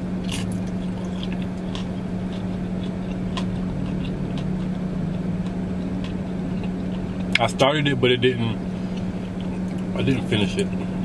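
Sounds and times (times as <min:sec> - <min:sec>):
low hum in car: 0:00.0 - 0:11.0
person chewing: 0:00.2 - 0:07.6, 0:08.7 - 0:10.0.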